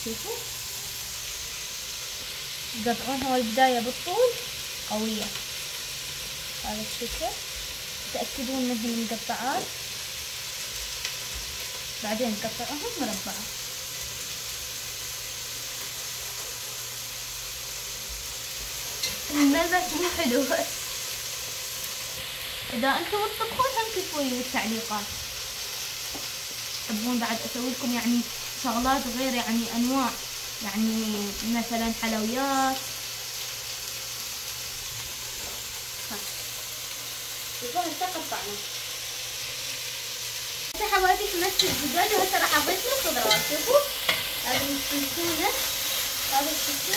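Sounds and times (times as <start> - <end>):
steady hiss: 0.0 - 46.9
person's voice: 19.3 - 20.7, 40.8 - 45.6.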